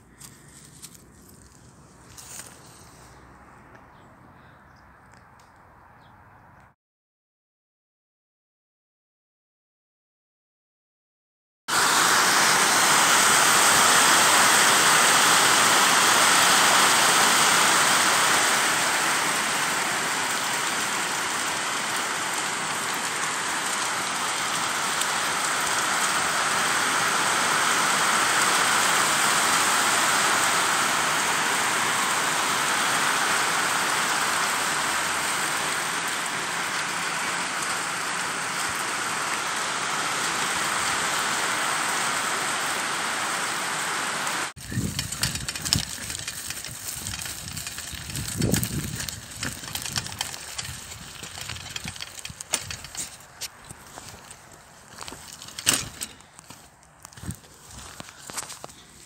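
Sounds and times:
heavy rain on pavement: 11.7s - 53.2s.

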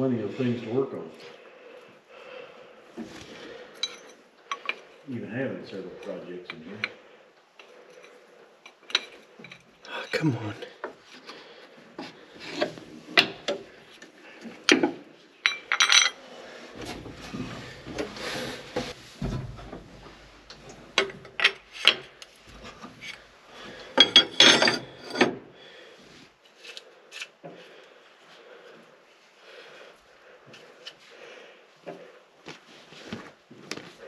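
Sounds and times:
wrenches and metal parts clinking: 3.7s - 4.9s, 14.7s - 16.2s, 21.0s - 23.2s, 23.8s - 25.4s
low rumble of parts shifting: 16.4s - 25.1s.

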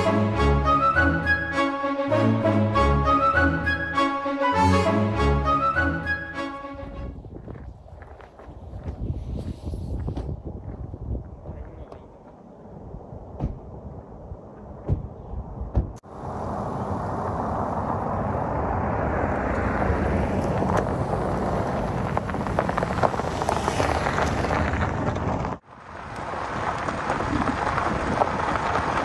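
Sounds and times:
car driving on gravel road: 7.1s - 12.7s, 16.0s - 29.0s
tyres crunching on gravel: 7.2s - 12.4s, 19.2s - 29.0s.

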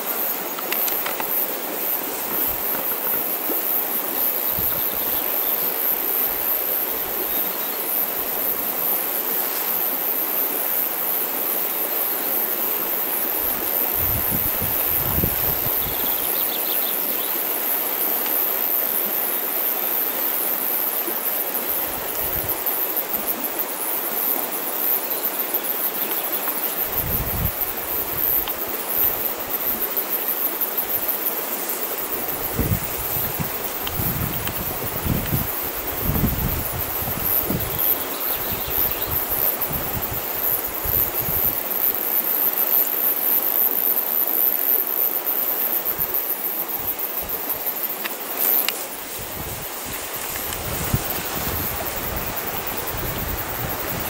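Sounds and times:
flowing water rushing: 0.0s - 40.9s
high-pitched insect drone: 0.0s - 54.0s.

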